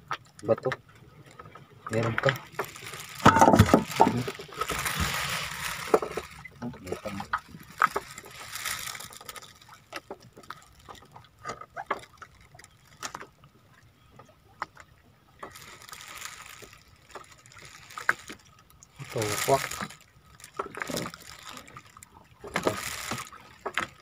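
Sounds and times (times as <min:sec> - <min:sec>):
water sloshing and dribbling: 0:00.0 - 0:24.0.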